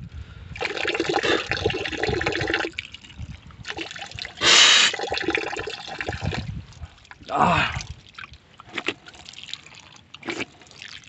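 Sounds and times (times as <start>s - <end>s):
spring water splashing: 0.6s - 6.4s.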